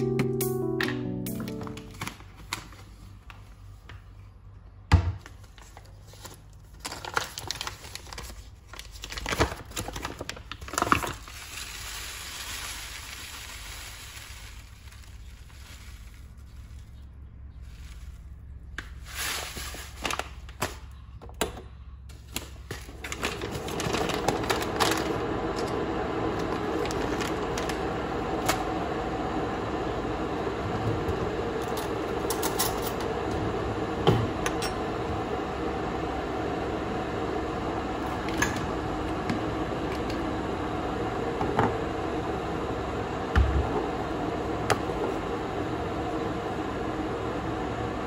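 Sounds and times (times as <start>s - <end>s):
rustling: 11.3s - 20.5s
electric kettle humming: 22.9s - 48.0s.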